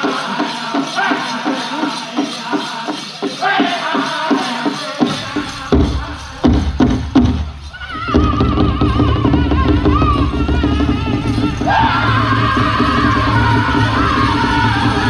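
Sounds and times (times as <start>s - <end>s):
group singing: 0.0s - 7.0s, 7.8s - 15.0s
fast big drumbeat: 0.0s - 15.0s
hard drum strikes: 5.0s - 9.4s.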